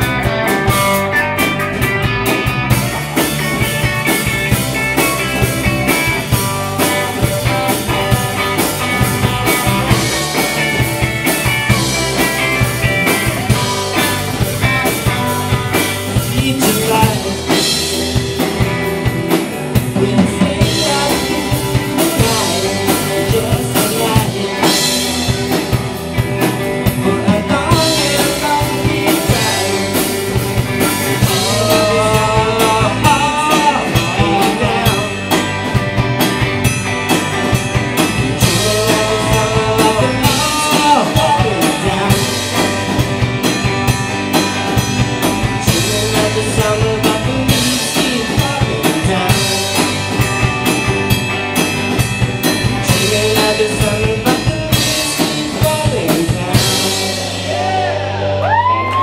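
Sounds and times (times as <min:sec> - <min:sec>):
drum kit: 0:00.0 - 0:59.0
electric guitar: 0:00.0 - 0:59.0.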